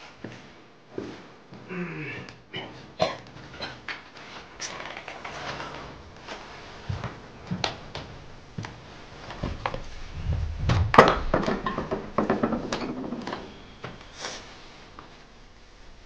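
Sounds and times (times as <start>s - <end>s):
footsteps: 6.1s - 12.2s
objects knocking and clattering: 9.4s - 14.0s.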